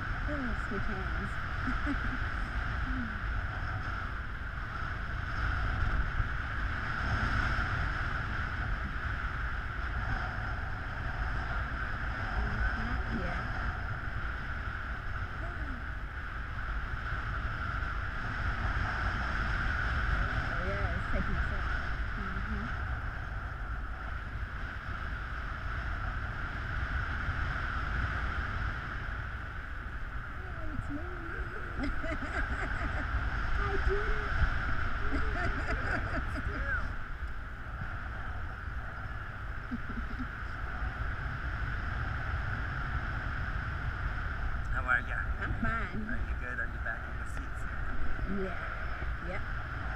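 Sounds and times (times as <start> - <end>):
low buffeting rumble: 0.0 - 49.9
wind rushing over microphone: 0.0 - 49.9.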